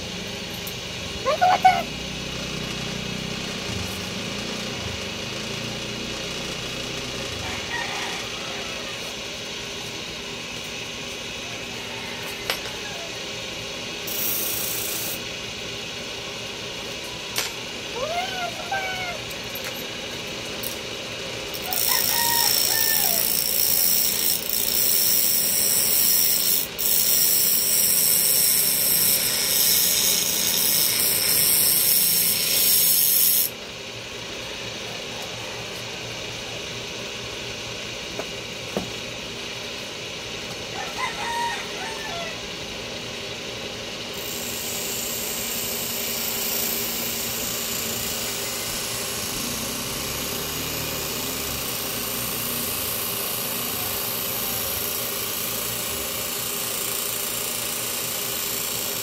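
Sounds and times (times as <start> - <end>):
hissy power tool running: 0.0 - 59.0
steady machine hum: 0.0 - 59.0
rooster crowing: 7.3 - 9.2, 11.4 - 13.3, 21.6 - 23.4, 40.7 - 42.6.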